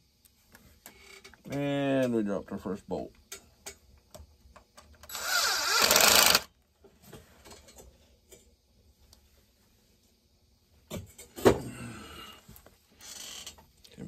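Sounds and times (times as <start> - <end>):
cordless drill running: 5.1 - 6.5.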